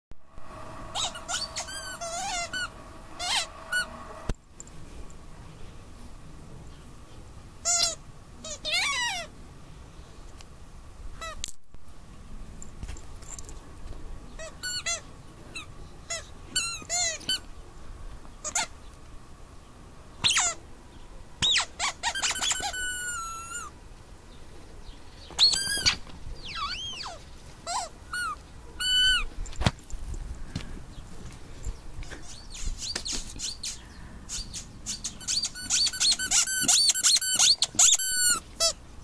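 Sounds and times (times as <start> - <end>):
dog chewing toy: 0.9 - 3.8, 35.2 - 38.7
squeaky toy squeaking: 0.9 - 3.9, 7.6 - 9.3, 14.4 - 15.0, 15.6 - 17.4, 18.4 - 18.7, 20.2 - 20.6, 21.4 - 23.7, 25.4 - 29.3, 35.0 - 38.8.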